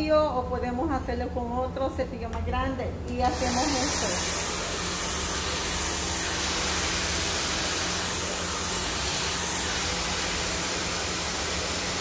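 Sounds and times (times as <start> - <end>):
hair dryer blowing: 3.2 - 12.0.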